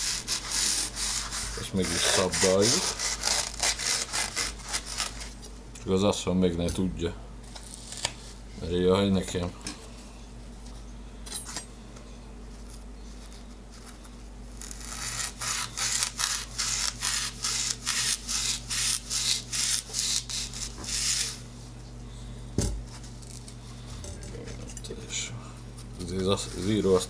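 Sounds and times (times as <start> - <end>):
knife sawing through sponge: 0.0 - 5.3, 14.6 - 21.4, 26.2 - 27.0.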